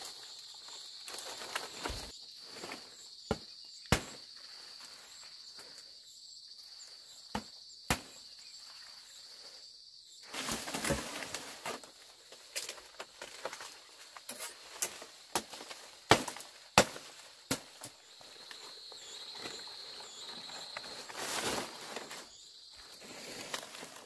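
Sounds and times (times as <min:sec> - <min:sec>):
palm fronds rustling: 0:00.0 - 0:03.1, 0:10.2 - 0:24.0
blade chopping palm stalks: 0:01.3 - 0:04.2, 0:07.3 - 0:08.2, 0:10.4 - 0:11.9, 0:12.6 - 0:18.0.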